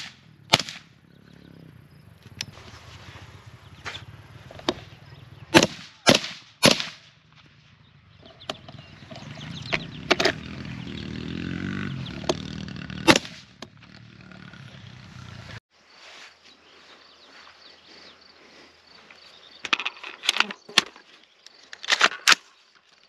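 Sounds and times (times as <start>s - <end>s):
sharp cracks: 0.0s - 1.0s, 5.5s - 7.2s, 12.2s - 14.1s.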